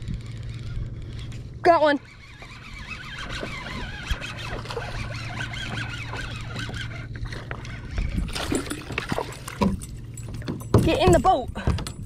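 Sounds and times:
fishing reel ticking and whirring: 0.0 - 8.3.

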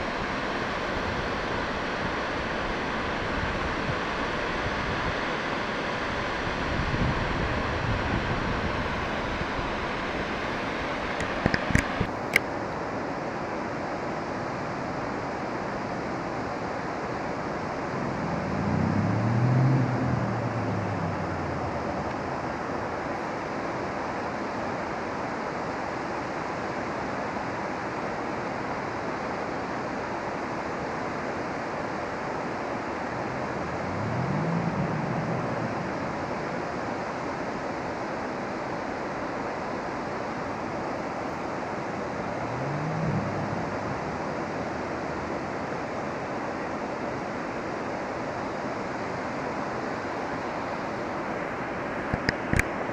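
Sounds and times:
flowing water rushing: 0.0 - 52.9
sharp clicks: 11.2 - 12.5
low hum rising and falling: 17.8 - 22.7, 33.0 - 36.6, 42.0 - 45.3.

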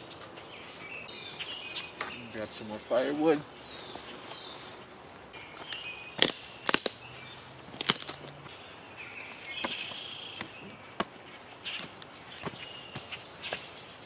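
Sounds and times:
dry sticks snapping: 5.4 - 13.7.

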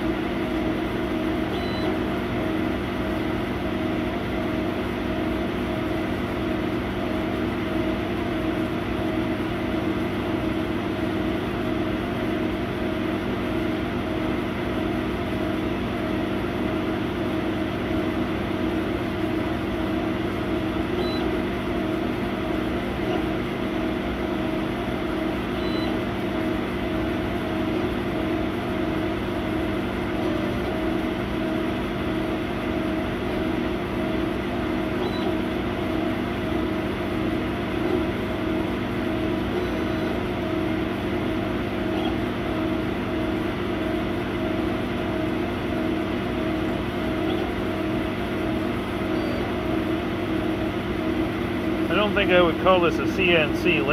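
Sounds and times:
laser cutter humming: 0.0 - 53.9.

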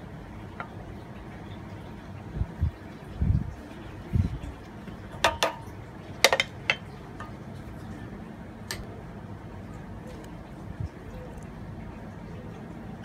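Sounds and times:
wooden spatula knocking metal pot: 5.2 - 5.6, 6.2 - 6.9.

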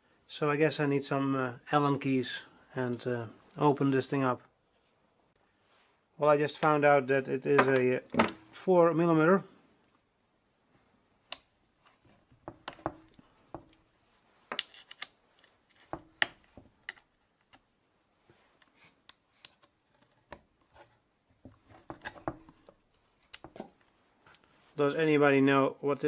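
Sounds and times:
allen key clicks and scrapes: 14.5 - 15.9.

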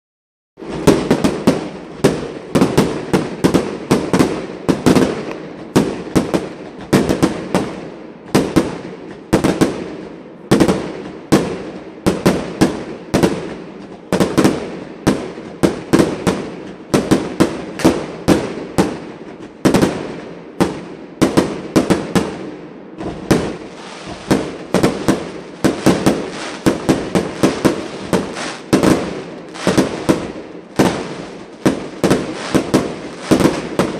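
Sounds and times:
fireworks bursting: 0.6 - 33.9.

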